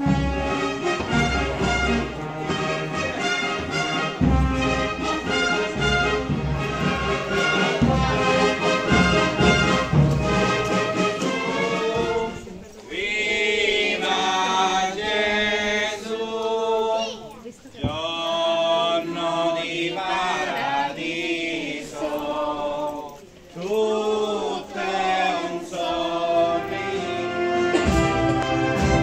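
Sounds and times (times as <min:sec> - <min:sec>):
brass band playing: 0:00.0 - 0:12.7, 0:24.8 - 0:29.0
voices singing: 0:00.0 - 0:29.0.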